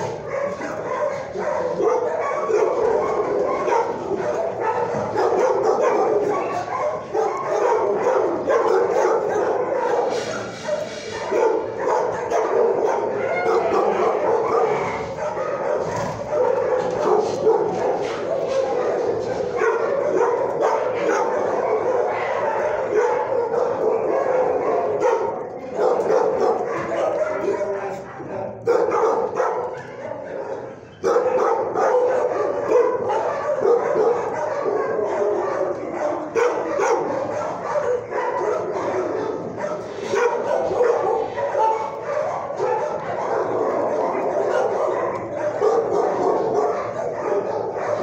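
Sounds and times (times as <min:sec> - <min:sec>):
many dogs barking and yipping: 0:00.0 - 0:48.0.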